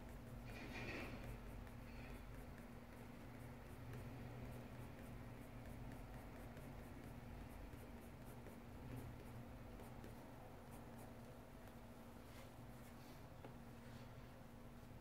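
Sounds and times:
pencil scratching on paper: 0.0s - 13.3s
steady low hum: 0.0s - 15.0s.

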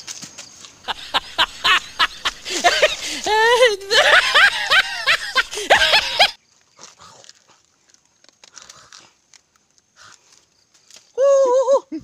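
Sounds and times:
chewing and mouth sounds: 6.8s - 10.4s.

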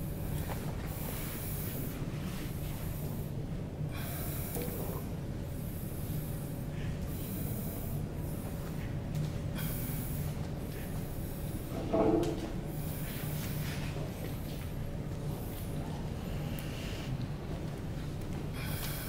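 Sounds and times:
steady low hum: 0.0s - 19.0s
person breathing: 3.9s - 5.0s, 16.2s - 17.2s, 18.6s - 19.0s.

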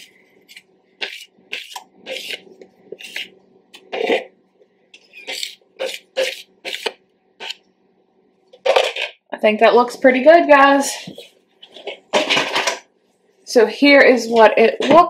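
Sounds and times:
metal spoon scraping mixing bowl: 0.0s - 4.3s, 5.0s - 7.6s.

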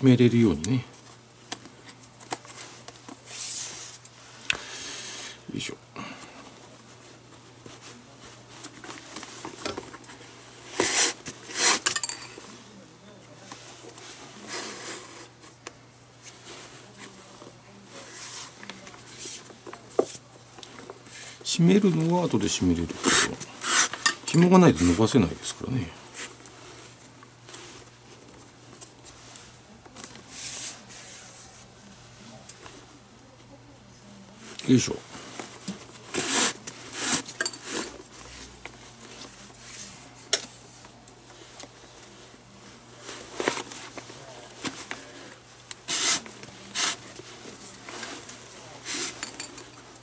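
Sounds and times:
leather lace rubbing and sliding: 23.0s - 24.0s, 45.8s - 48.2s
lace hissing through leather: 45.8s - 47.0s.

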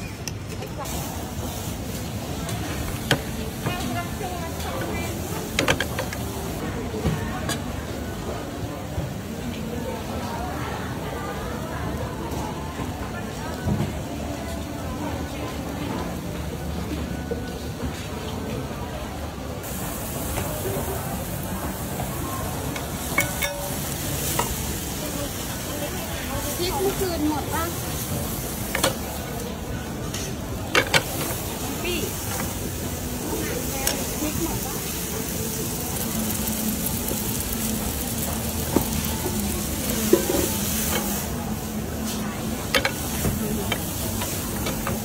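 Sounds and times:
food sizzling in a pan: 0.8s - 8.7s, 19.6s - 45.0s.

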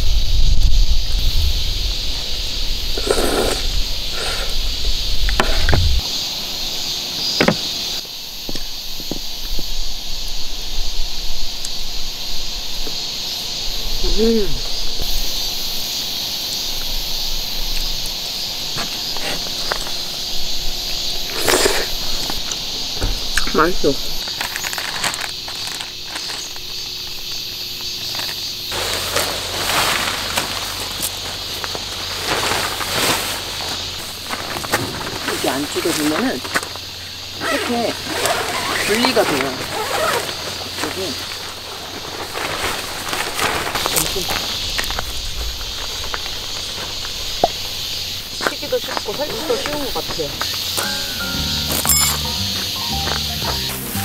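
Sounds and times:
high insect-like hiss: 0.0s - 54.0s
nylon tent fly rustling: 13.3s - 50.8s.

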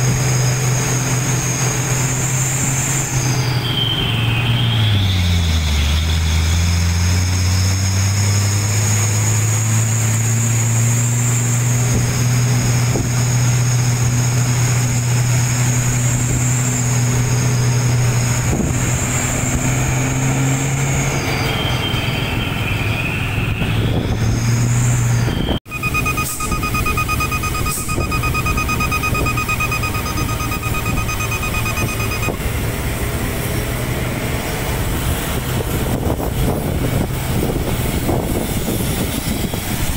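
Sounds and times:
diesel truck engine running: 0.0s - 39.9s
road rumble: 0.0s - 39.9s
wind: 0.0s - 39.9s
high whining tones: 11.3s - 33.8s
electronic beeping: 25.7s - 32.5s.

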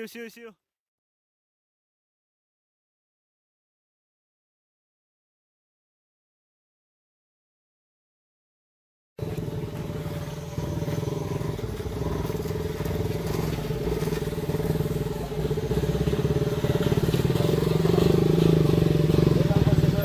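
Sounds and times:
motorcycles riding through mud: 9.2s - 20.0s.

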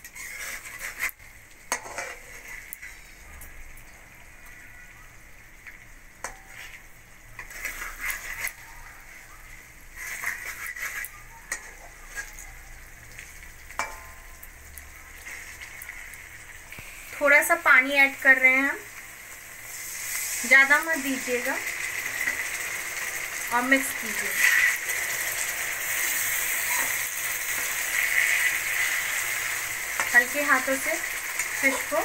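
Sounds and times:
spatula scraping and knocking pan: 0.0s - 3.0s, 7.4s - 8.6s, 10.0s - 12.5s, 29.9s - 32.0s
oil sizzling: 0.0s - 32.0s.

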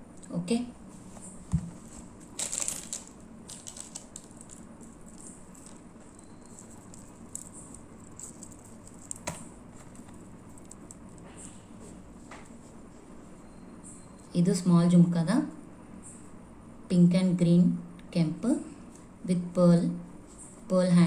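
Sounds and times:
plastic packet crinkle: 2.3s - 11.2s.

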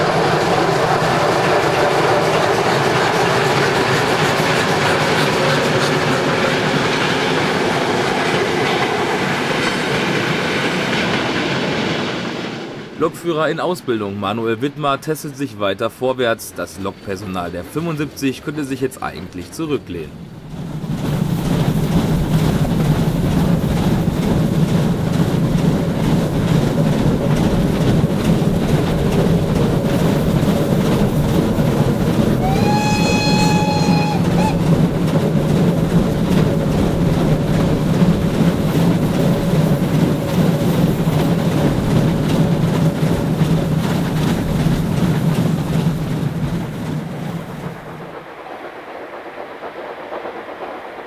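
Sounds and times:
steam train running: 0.0s - 51.0s
steam whistle blast: 32.4s - 34.7s.

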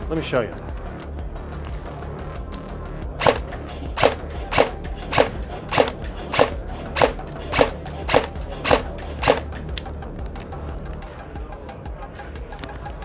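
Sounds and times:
airsoft rifle shots cracking: 3.2s - 9.6s.

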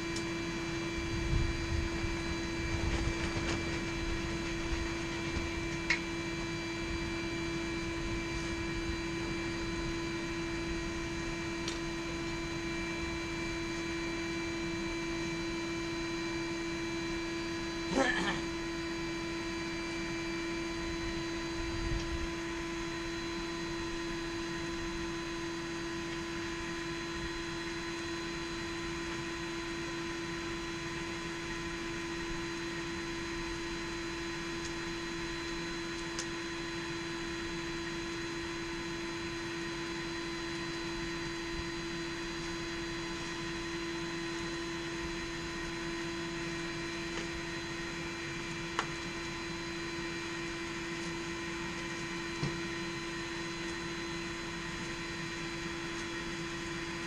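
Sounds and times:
air blower humming: 0.0s - 29.6s.

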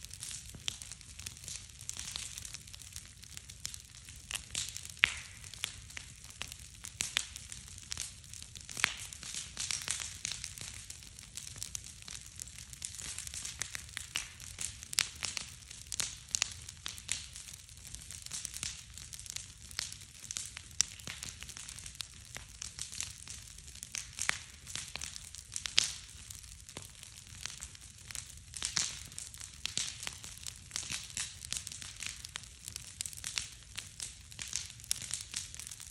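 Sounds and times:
bonfire crackling and popping: 0.0s - 35.9s
low fire rumble: 0.0s - 35.9s.

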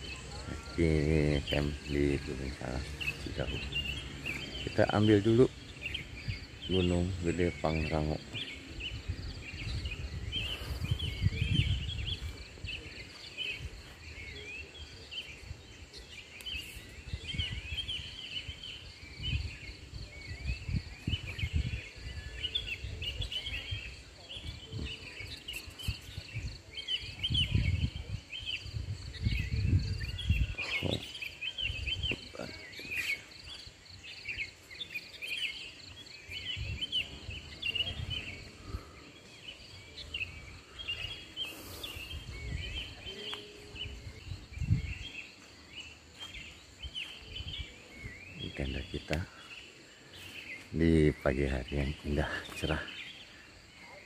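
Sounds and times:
low rumble on microphone: 0.0s - 15.9s, 25.8s - 31.1s, 36.3s - 45.4s
small birds chirping: 0.0s - 54.0s
high insect drone: 28.6s - 54.0s.

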